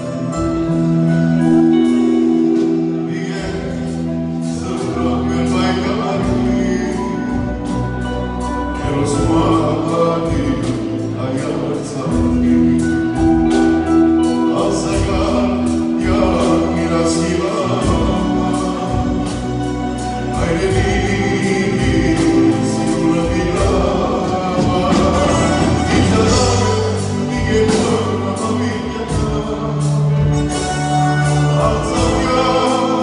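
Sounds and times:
drums keeping a steady beat: 0.0 - 33.0
electric guitars: 0.0 - 33.0
keyboard: 0.0 - 33.0
man singing into a microphone: 1.4 - 33.0.

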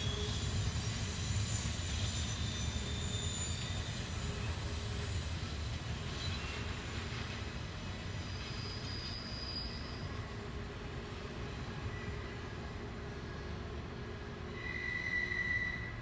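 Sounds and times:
high wheel squeals: 0.0 - 7.4, 8.0 - 10.5, 14.5 - 16.0
freight train rumble: 0.0 - 16.0.

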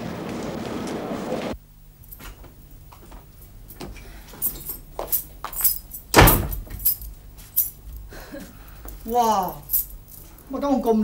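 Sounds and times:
keys jangling: 3.7 - 7.8, 8.7 - 10.5
door unlocking and opening: 6.0 - 7.0
door thump: 6.1 - 6.8.

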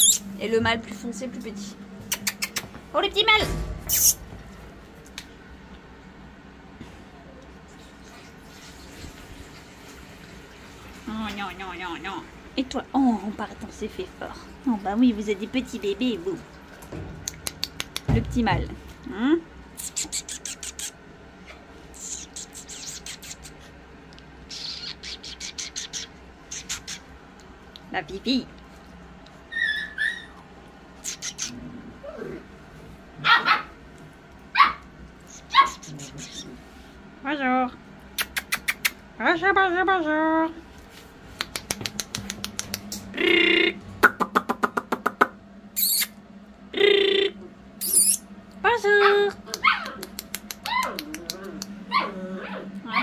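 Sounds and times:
puppy sucking on fingers: 2.1 - 2.8, 17.2 - 18.1, 19.8 - 21.0, 21.9 - 23.7, 24.5 - 27.5, 31.0 - 31.5, 38.2 - 39.0, 41.3 - 43.1, 49.5 - 51.8
puppies scuffling clicks and taps: 16.7 - 18.8, 40.8 - 43.1
puppies yipping: 29.5 - 30.5.

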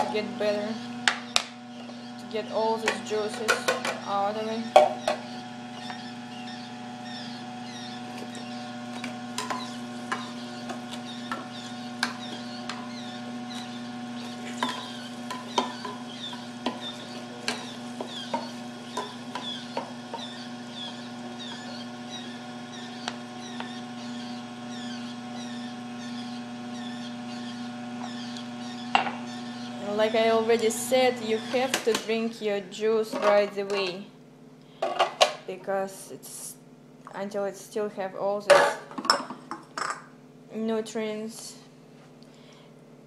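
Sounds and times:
juicer motor humming: 0.0 - 37.2
pulp squeaking and crackling: 5.0 - 8.7, 9.4 - 29.8.

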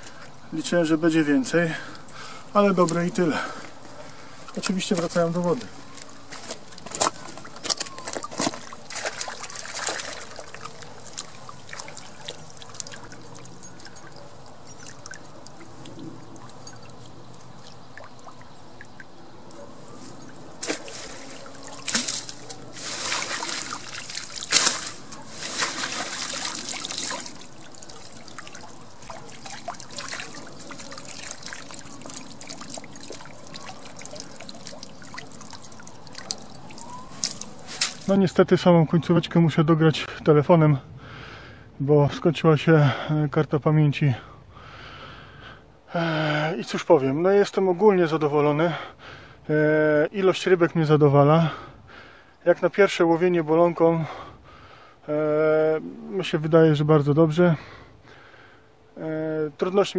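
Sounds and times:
water trickling and splashing: 0.0 - 38.4.

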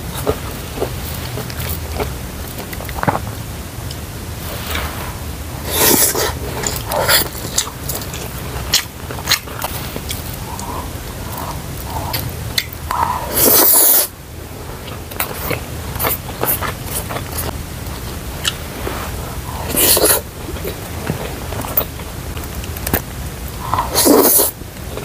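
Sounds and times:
chewing crunchy food: 0.0 - 4.0, 5.6 - 14.1, 14.8 - 25.0.

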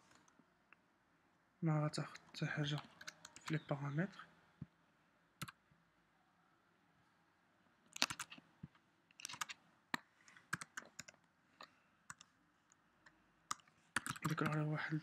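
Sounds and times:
keyboard key clicks: 8.0 - 8.4, 9.2 - 11.2.

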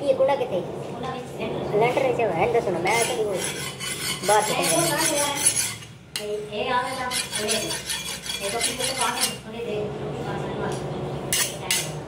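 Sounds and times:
cleaver blade scraping metal: 2.9 - 5.9, 6.8 - 9.4, 11.3 - 12.0.

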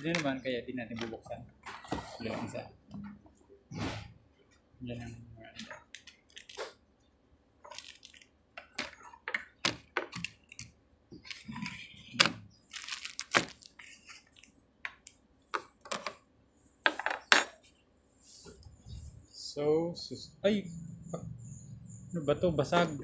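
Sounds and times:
plastic packaging crinkling: 5.9 - 6.7, 7.7 - 8.3, 12.6 - 14.5.

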